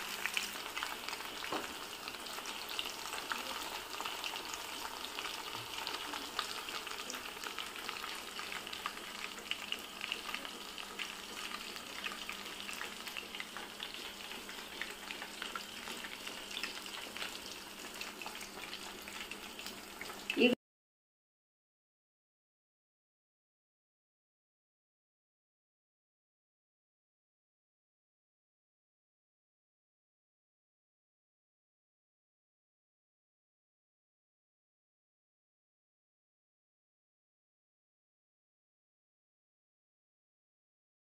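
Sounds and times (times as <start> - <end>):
meat deep-frying in hot oil: 0.0 - 20.6.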